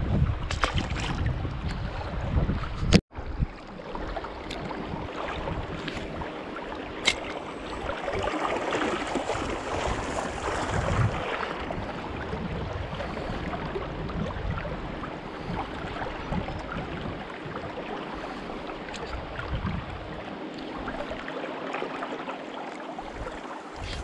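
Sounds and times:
river water babbling: 0:03.1 - 0:12.2, 0:20.0 - 0:24.0.

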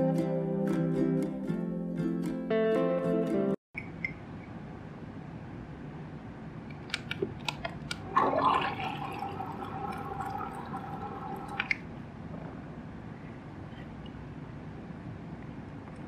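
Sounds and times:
liquid poured into a mug: 0:08.1 - 0:11.8.

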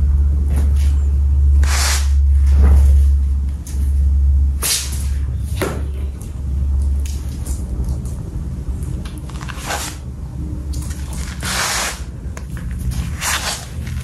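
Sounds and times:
low rumble: 0:00.0 - 0:14.0
rope rasping across wooden floor: 0:01.6 - 0:02.7, 0:11.2 - 0:12.1, 0:13.0 - 0:14.0.

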